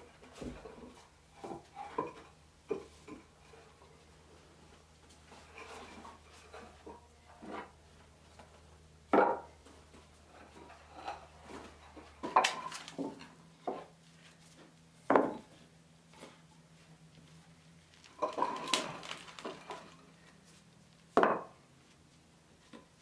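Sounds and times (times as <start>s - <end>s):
wooden rollers knocking on planks: 8.4s - 13.9s, 14.6s - 15.5s, 18.0s - 20.0s.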